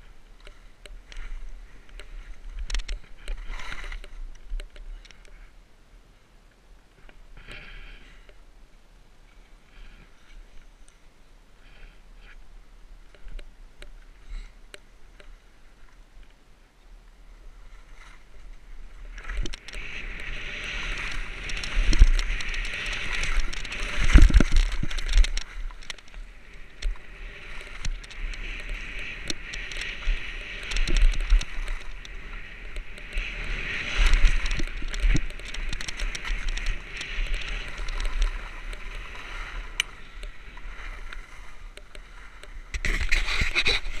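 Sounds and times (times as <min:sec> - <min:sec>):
skis sliding over snow: 0:00.0 - 0:05.6, 0:17.3 - 0:44.0
wind buffeting microphone: 0:19.2 - 0:41.2.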